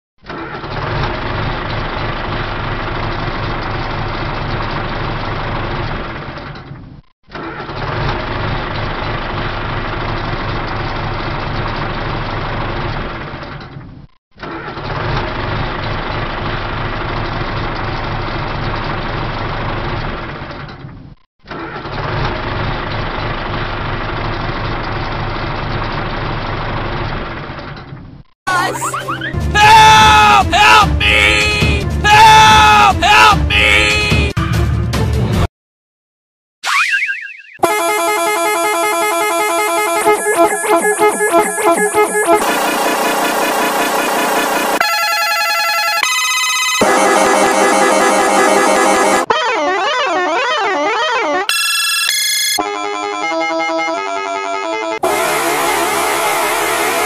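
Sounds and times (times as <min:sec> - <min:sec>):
tractor engine running: 0:00.2 - 0:07.0, 0:07.7 - 0:14.1, 0:14.8 - 0:21.2, 0:21.9 - 0:28.2, 0:37.6 - 0:45.4.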